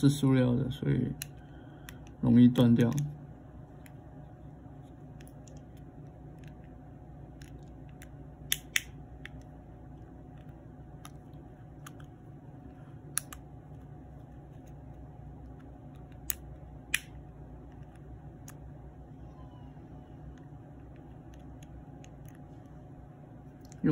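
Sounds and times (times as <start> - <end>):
steady low hum: 0.0 - 23.9.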